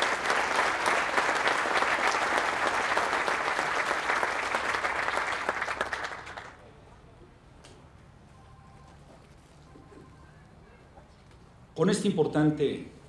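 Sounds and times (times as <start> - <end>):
audience applause: 0.0 - 6.6.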